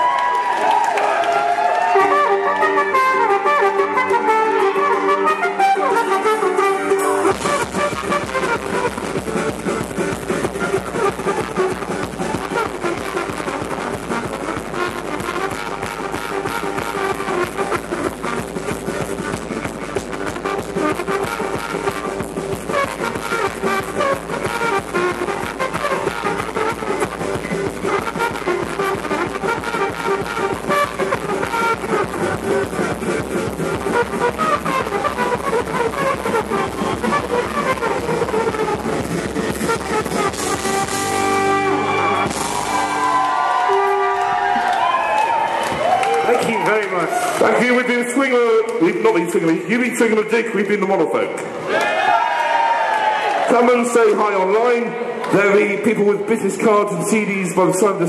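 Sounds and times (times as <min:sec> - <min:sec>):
trumpet: 0:00.0 - 0:48.6
live jazz band playing: 0:01.7 - 0:49.7
drum kit: 0:05.8 - 0:49.4
upright double bass: 0:06.9 - 0:44.8.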